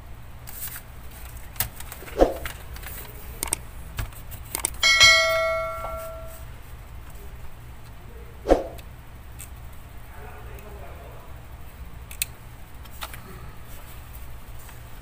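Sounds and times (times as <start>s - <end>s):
bright bell ding: 4.8s - 6.4s.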